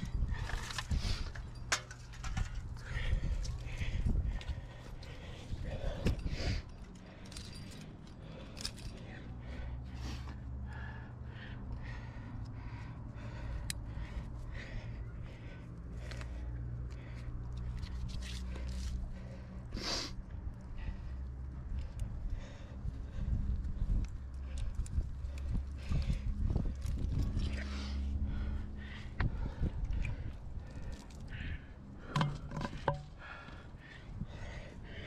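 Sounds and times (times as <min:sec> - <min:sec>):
climbing gear clinking: 0:00.0 - 0:10.4
steady low rumble: 0:00.0 - 0:35.0.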